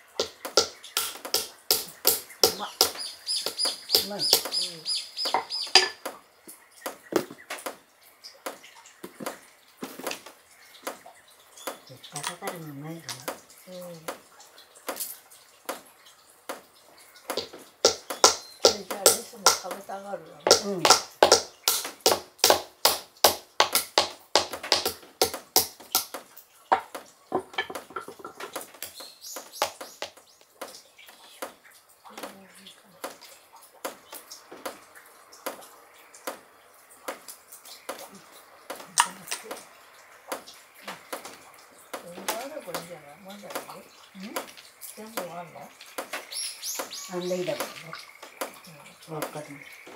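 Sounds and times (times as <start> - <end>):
hammers cracking nut shells: 0.1 - 6.1, 17.3 - 30.2.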